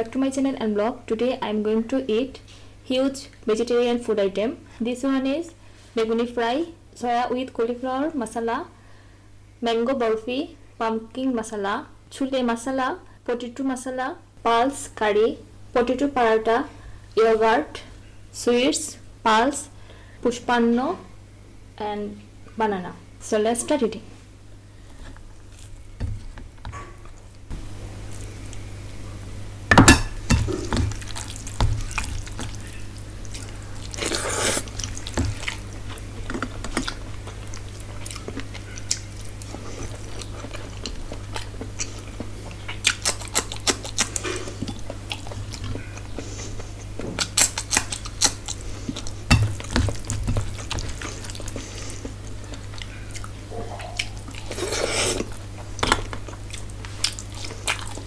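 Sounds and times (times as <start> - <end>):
steady low hum: 0.0 - 58.0
person chewing: 24.9 - 25.9, 30.1 - 58.0
hand mixing rice and curry: 30.2 - 40.9.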